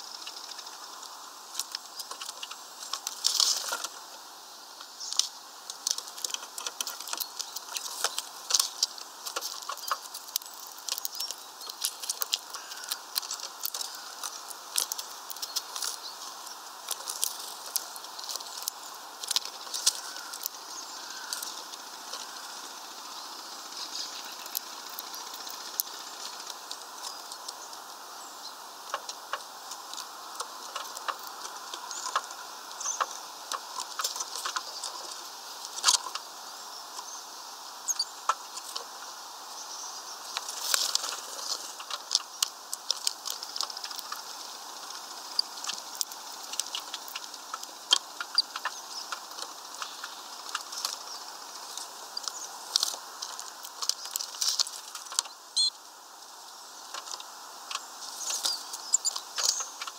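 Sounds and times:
birds pecking and cracking seeds: 0.0s - 59.9s
steady background hiss: 0.0s - 59.9s
birds shuffling on plastic tray: 5.7s - 23.0s.

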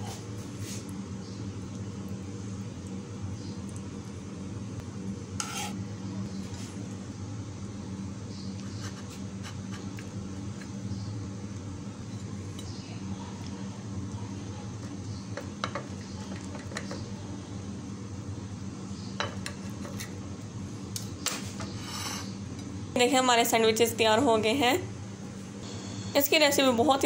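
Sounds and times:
steady low hum: 0.0s - 27.0s
knife scraping a ceramic plate: 5.4s - 5.8s, 21.6s - 22.4s.

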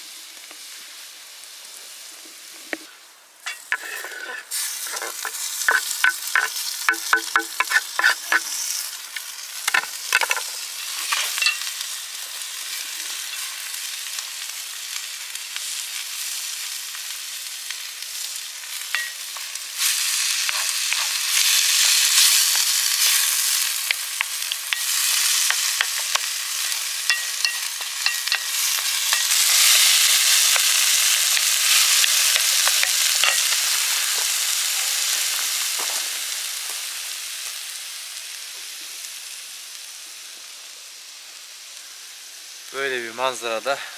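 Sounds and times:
vegetables sizzling in a pan: 0.0s - 43.9s
wooden spoon stirring: 3.5s - 8.5s, 20.0s - 33.5s
knife tapping and scraping: 4.9s - 8.5s, 23.9s - 26.3s, 27.1s - 29.4s, 31.9s - 33.5s.

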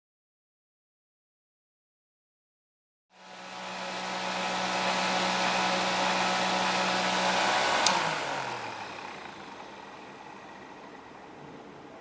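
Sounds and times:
desk fan blowing air: 3.1s - 12.0s
fan switch click: 7.6s - 8.4s.

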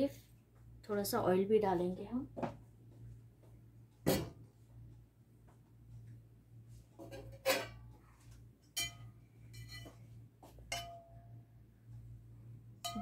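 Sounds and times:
low steady hum: 0.0s - 13.0s
utensils clinking on a pot: 7.0s - 7.9s, 8.8s - 10.0s, 10.6s - 11.2s.

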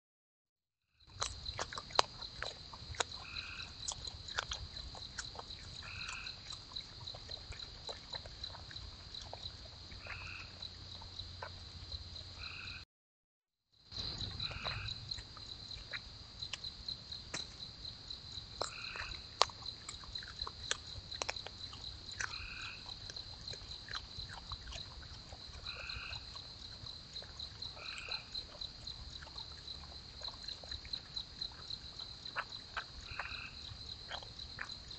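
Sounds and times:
insects trilling: 1.0s - 12.8s, 13.8s - 34.9s
frog calls: 3.2s - 8.6s, 9.2s - 11.6s, 12.2s - 12.8s, 14.0s - 15.2s, 18.6s - 23.1s, 23.8s - 26.5s, 27.1s - 34.8s.

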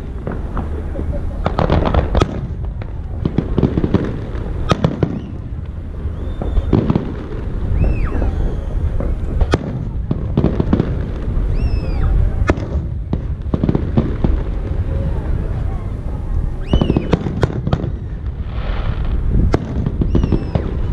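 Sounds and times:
fireworks bangs: 0.0s - 20.9s
rumble of fireworks bursts: 0.0s - 20.9s
high whistling tones: 5.0s - 6.9s, 7.6s - 9.3s, 11.4s - 12.3s, 16.6s - 17.2s, 19.9s - 20.9s.

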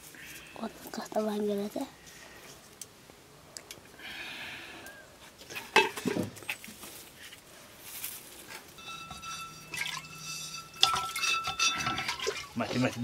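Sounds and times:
firewood and pots clattering: 5.4s - 7.0s, 8.1s - 13.0s
faint steady tone: 8.8s - 12.5s.

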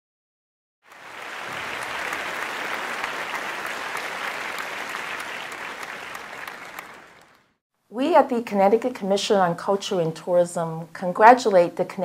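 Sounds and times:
audience applauding: 0.9s - 7.6s.

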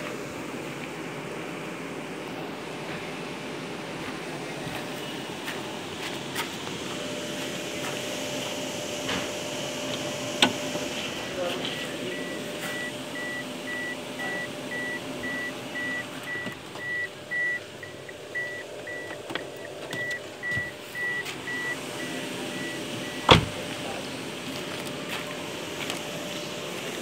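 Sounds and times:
car door slamming: 9.0s - 10.7s, 23.0s - 23.7s
car warning chime beeping: 11.7s - 23.7s.

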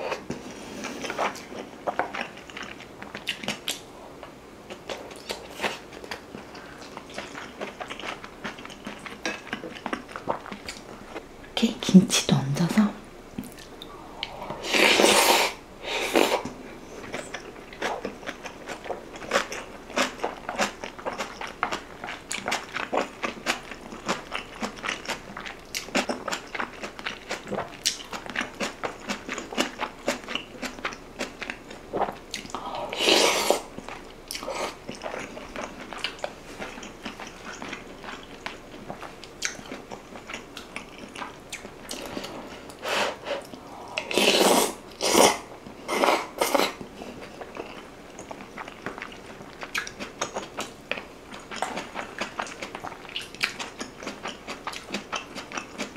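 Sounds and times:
close chewing with wet smacks: 0.9s - 11.2s, 17.0s - 32.6s, 33.7s - 42.8s, 46.5s - 55.9s.

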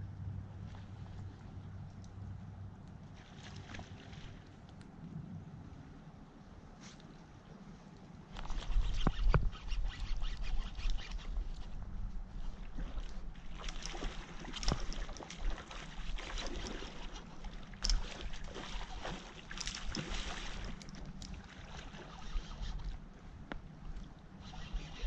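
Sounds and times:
wind rumble on microphone: 0.0s - 25.0s
fish splashing and thrashing: 12.6s - 23.0s.

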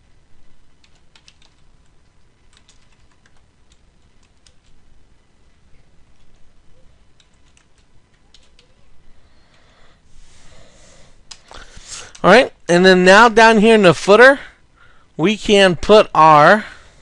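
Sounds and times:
keyboard keys clicking: 0.8s - 1.6s, 2.5s - 4.8s, 7.2s - 8.8s.

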